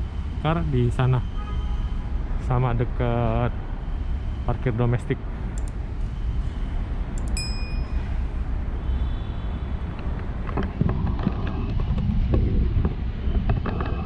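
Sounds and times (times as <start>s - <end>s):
low traffic rumble: 0.0s - 14.0s
click and bell chime effect: 7.2s - 8.1s.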